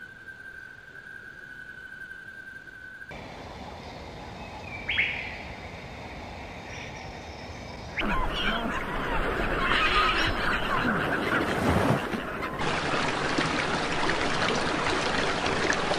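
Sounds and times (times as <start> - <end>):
songbird sharp call: 4.6 - 5.4
seabird colony calling: 7.9 - 12.6.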